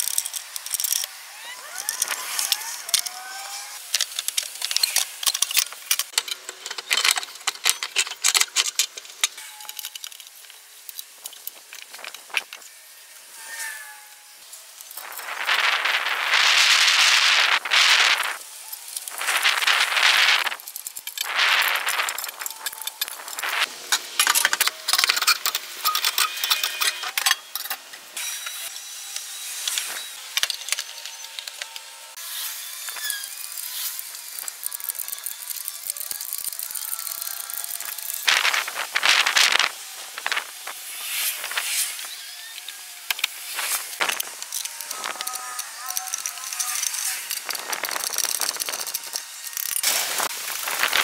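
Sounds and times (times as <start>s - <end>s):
metal rubbing scrape: 0.1s - 51.0s
metal tools clinking and rattling: 3.9s - 12.6s, 18.7s - 27.8s, 41.4s - 51.0s.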